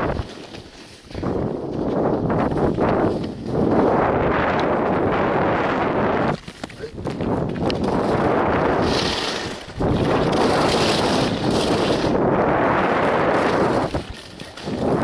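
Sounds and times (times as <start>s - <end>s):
wind rushing over microphone: 0.0s - 15.0s
skis hissing over snow: 8.3s - 12.2s.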